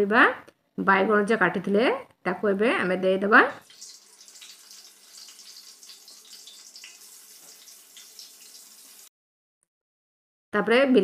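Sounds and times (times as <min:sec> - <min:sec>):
vegetables sizzling in hot oil: 0:03.6 - 0:09.1.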